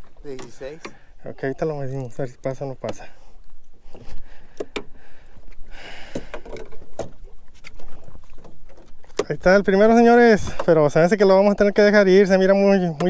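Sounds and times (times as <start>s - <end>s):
knocks and handling clatter: 6.2s - 9.4s.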